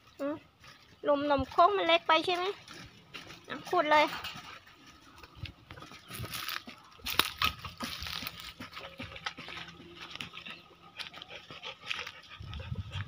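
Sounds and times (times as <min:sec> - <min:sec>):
dog digging in dry soil: 0:06.0 - 0:13.0.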